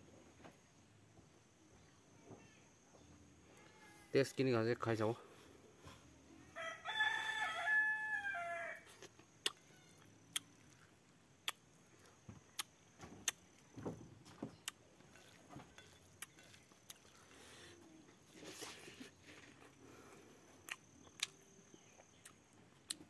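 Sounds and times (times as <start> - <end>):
rooster crowing: 6.5 - 9.0
person eating with clicks and smacks: 8.8 - 13.6, 14.6 - 19.8, 20.6 - 23.0.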